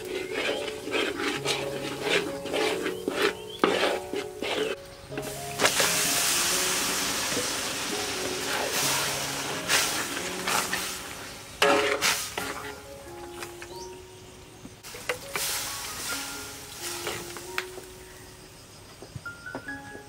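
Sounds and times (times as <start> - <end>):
metal spatula scraping in wok: 0.0 - 13.6, 14.9 - 17.5
background music: 0.0 - 20.0
meat sizzling in hot oil: 5.1 - 12.9, 14.8 - 17.8.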